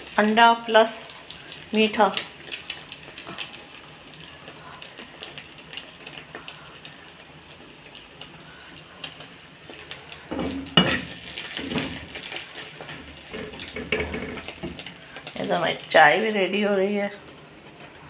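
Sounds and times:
faint frying: 0.0s - 18.0s
spatula scraping a frying pan: 10.3s - 15.3s.

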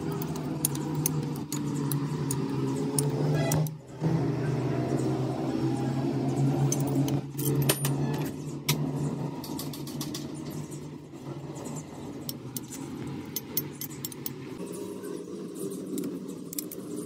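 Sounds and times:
metal tools clinking: 6.7s - 8.2s.

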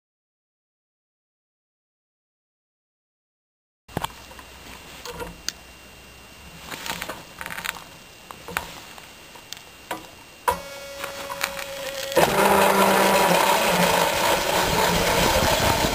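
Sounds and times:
electric motor whine: 4.0s - 15.9s.

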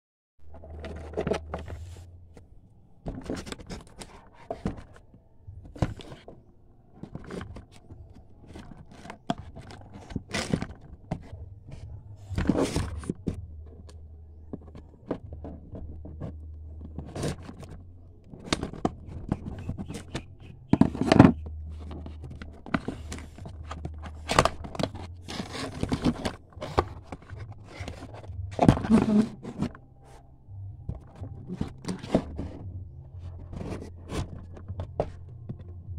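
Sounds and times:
hands scraping and tearing cardboard: 7.0s - 30.2s, 30.9s - 35.9s
scissors cutting cardboard: 18.4s - 29.8s.

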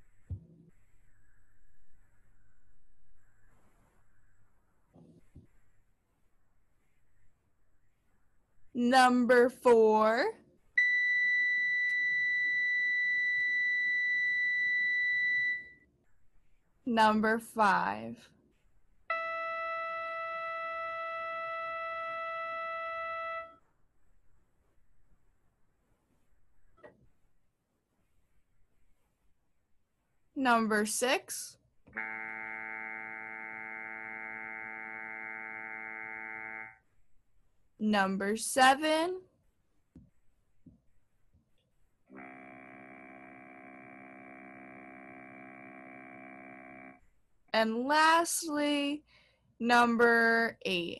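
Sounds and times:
buzzy electronic test tone: 19.1s - 23.6s, 32.0s - 36.9s, 42.1s - 47.0s.

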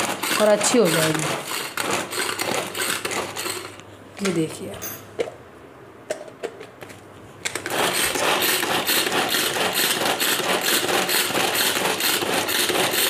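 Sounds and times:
vegetable chopper whirring rattle: 0.0s - 3.8s, 7.6s - 13.0s.

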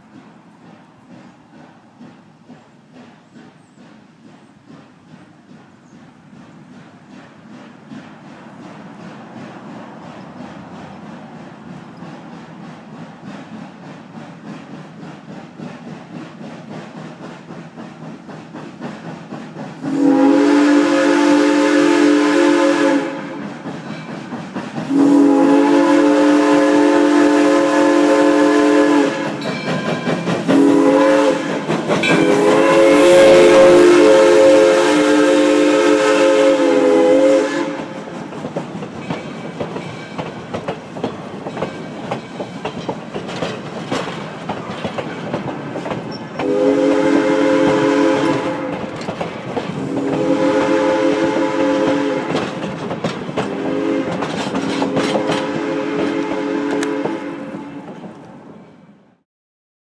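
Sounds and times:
train wheels clattering over rail joints: 0.0s - 58.6s
steam locomotive chime whistle: 19.8s - 24.1s, 24.9s - 38.0s, 46.1s - 49.0s, 49.8s - 52.5s, 53.5s - 57.9s.

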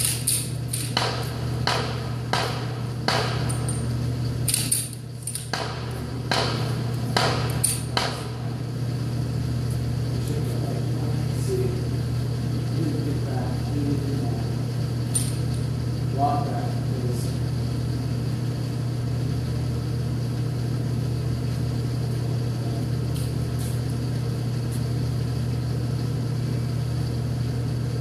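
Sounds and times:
steady low hum: 0.0s - 28.0s.

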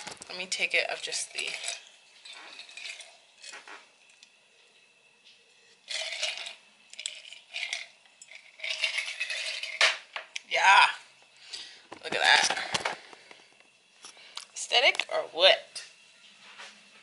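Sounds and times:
glass bottles clinking: 0.8s - 3.7s, 5.9s - 10.3s.

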